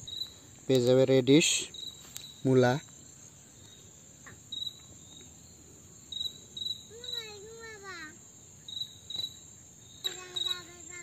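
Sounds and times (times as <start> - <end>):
insect chirps: 0.0 - 11.0
insect drone: 0.0 - 11.0.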